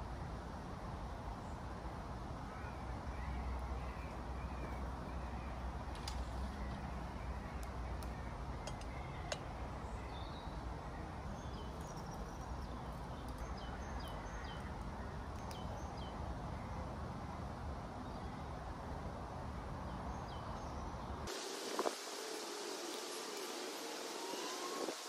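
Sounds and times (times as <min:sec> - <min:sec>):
small birds chirping: 0:02.5 - 0:18.7.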